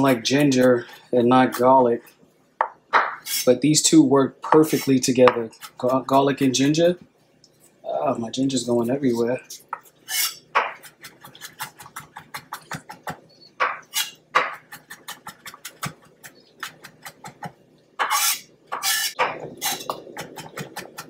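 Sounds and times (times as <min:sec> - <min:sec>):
knife scraping on board: 0:03.0 - 0:03.6, 0:09.5 - 0:11.8, 0:13.7 - 0:17.2, 0:18.0 - 0:20.5.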